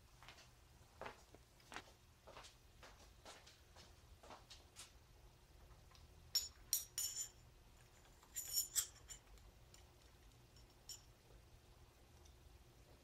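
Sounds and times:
metal pushrods clinking: 0:08.2 - 0:09.3.

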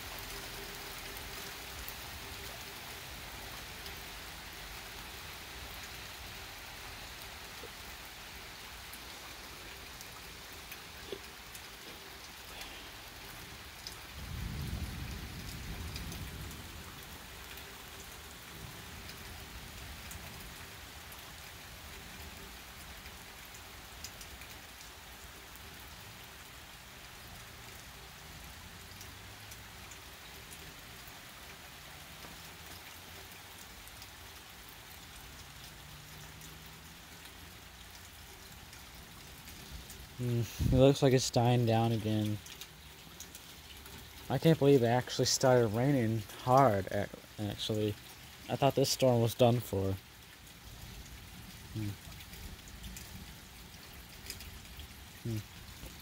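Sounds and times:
heavy rain on street: 0:00.0 - 0:56.0
thunder rumble: 0:14.1 - 0:17.0.

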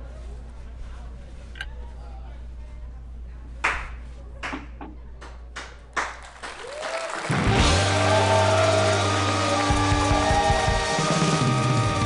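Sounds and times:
rock band music: 0:07.3 - 0:12.0.

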